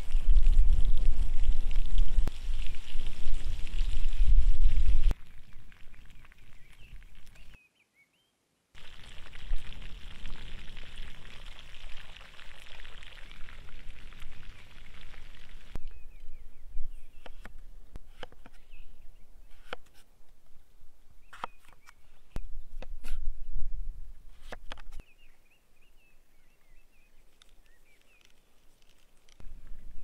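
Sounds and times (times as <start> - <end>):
faint bird chirps: 5.4 - 8.5, 25.0 - 28.4
meat sizzling in a pan: 8.8 - 15.8.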